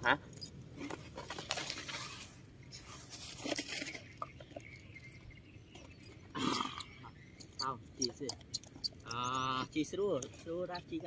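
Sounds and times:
faint rustling in sand: 0.8 - 4.2
plastic toys clicking: 6.8 - 9.6.

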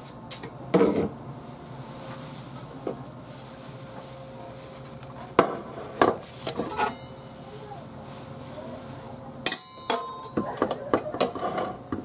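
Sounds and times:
baking tray clanking on metal: 9.4 - 11.8.

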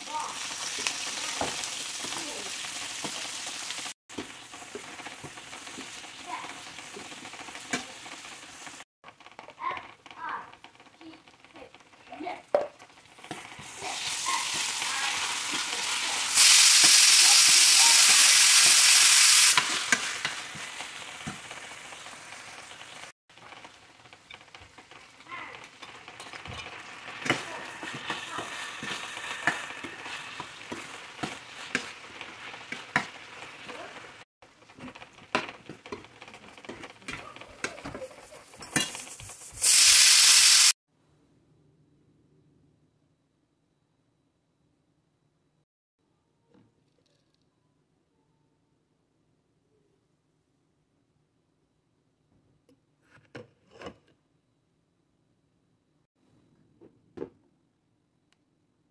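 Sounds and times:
food sizzling in a pan: 0.0 - 40.8
metal spoon scraping a pan: 24.1 - 33.6, 34.8 - 39.6.

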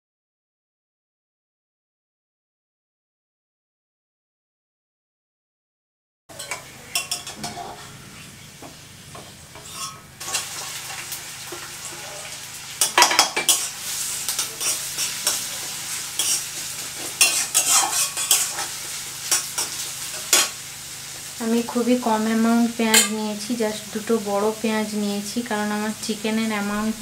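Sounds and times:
metal spatula scraping pan: 6.3 - 20.6
onions sizzling in oil: 6.3 - 27.0.

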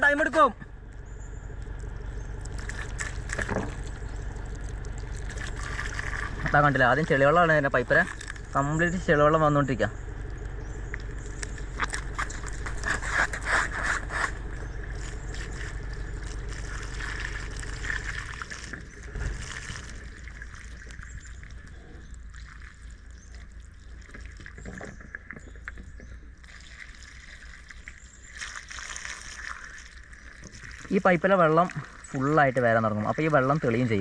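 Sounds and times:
low rumble: 0.0 - 26.5
water splashing from pipe: 1.7 - 9.5, 11.0 - 24.8, 26.3 - 34.0.

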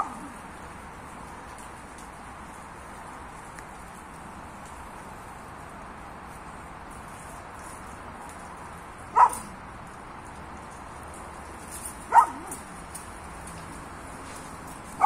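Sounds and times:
dog barking: 0.0 - 0.3, 9.1 - 9.5, 12.1 - 12.6.

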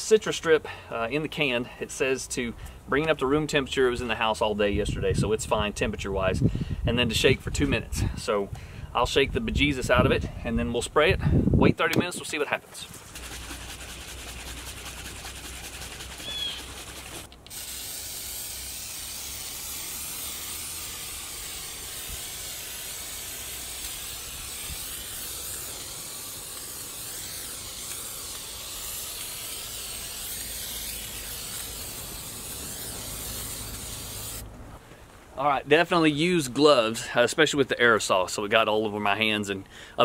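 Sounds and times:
aerosol can spraying hiss: 12.9 - 34.4.

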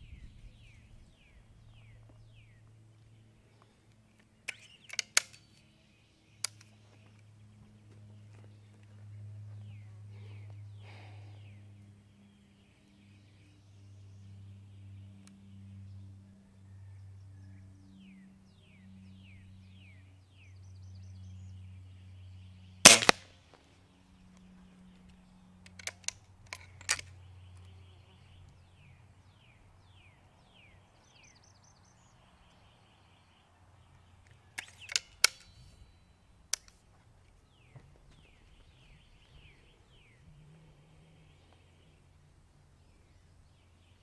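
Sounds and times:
birds chirping: 0.0 - 23.1, 23.8 - 44.0
metallic clicks of rifle cocking: 4.4 - 5.7, 6.4 - 6.7, 22.9 - 23.2, 25.6 - 27.2, 34.2 - 35.7, 36.5 - 36.8
air rifle shot crack: 22.9 - 23.3.

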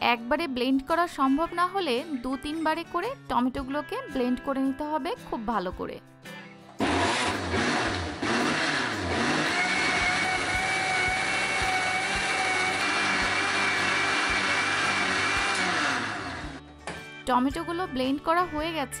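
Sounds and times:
blender running: 6.8 - 16.6.

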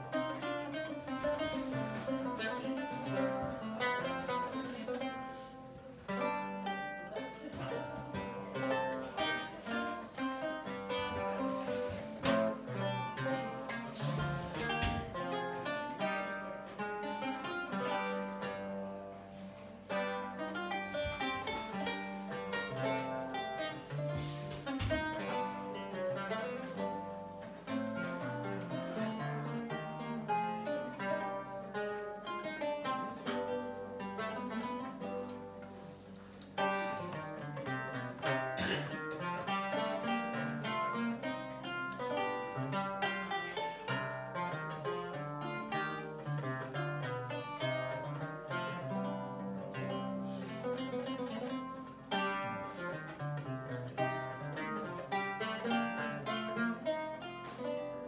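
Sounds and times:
lute playing: 0.0 - 58.0.

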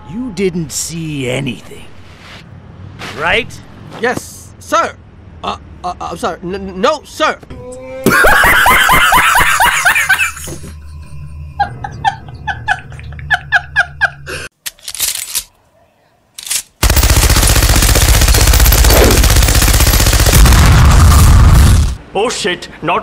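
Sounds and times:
man laughing loudly: 8.0 - 14.5
machine gun firing: 16.8 - 22.0.

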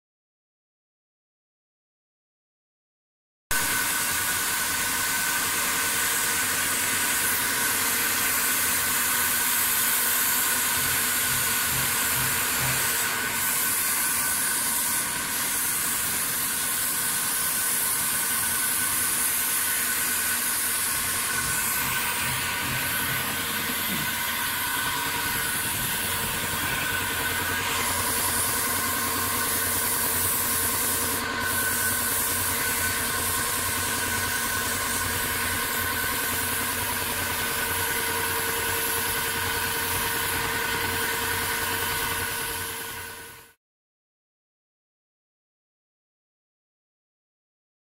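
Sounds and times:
paint spray gun hissing: 3.6 - 43.6
machine hum: 10.6 - 13.5, 19.6 - 37.5.

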